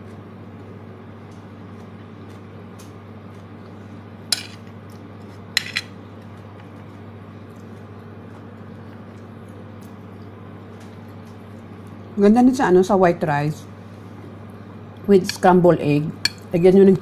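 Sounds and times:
steady low hum: 0.0 - 17.0
metal spoon clinking on plate: 5.6 - 5.9.

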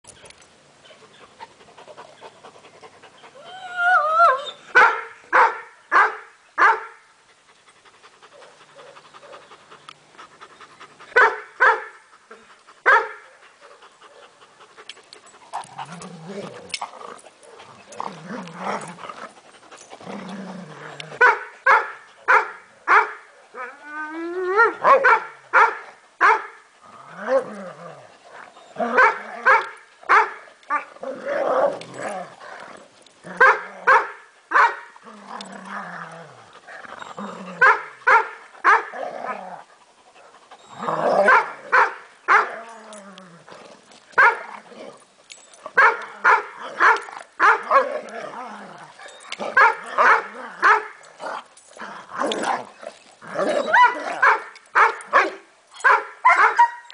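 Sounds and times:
dogs play barking: 4.6 - 23.8, 24.6 - 56.9
dog growling: 15.6 - 21.2, 35.0 - 37.6, 40.6 - 41.7, 47.6 - 54.2
dog whining: 36.8 - 37.6, 40.6 - 41.3, 53.3 - 54.2.

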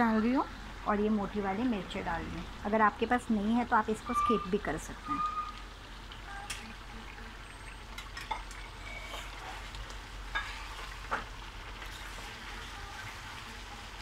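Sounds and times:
chicken sizzling in pan: 0.0 - 14.0
steel spatula scraping pan: 8.6 - 9.7, 10.3 - 11.0.

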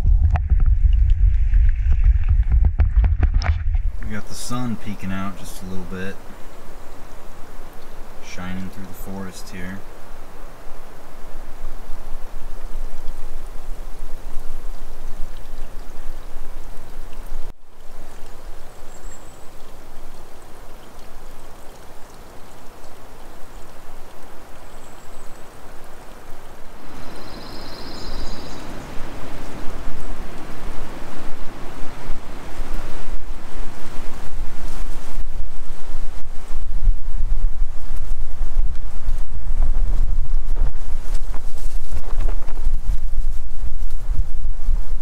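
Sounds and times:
wind rumbling on microphone: 0.0 - 18.7, 22.9 - 45.0
stream running over rocks: 3.4 - 45.0.

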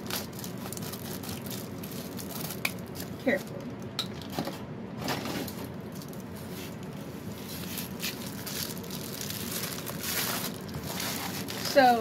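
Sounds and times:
plastic mailer crinkling: 0.0 - 3.6, 7.5 - 12.0.

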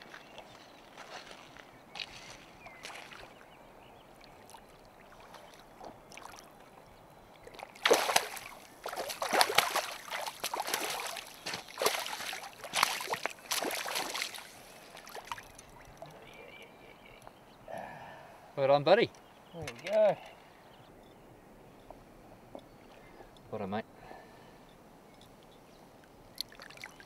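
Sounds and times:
fish thrashing and splashing in water: 7.5 - 15.8.

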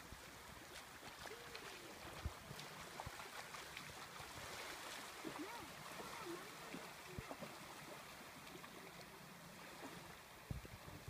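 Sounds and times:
small waves lapping: 0.0 - 11.0
faint distant voice: 5.2 - 7.6.

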